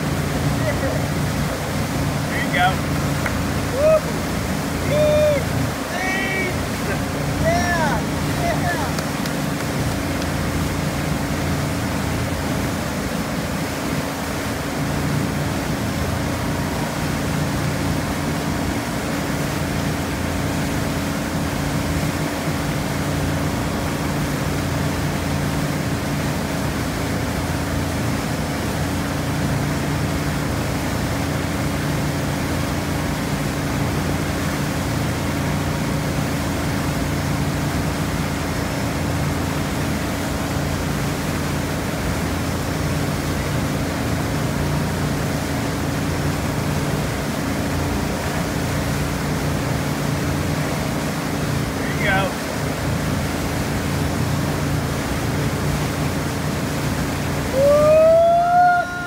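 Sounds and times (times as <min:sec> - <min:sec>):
motorboat engine running: 0:00.0 - 0:59.0
water and wind rushing: 0:00.0 - 0:59.0.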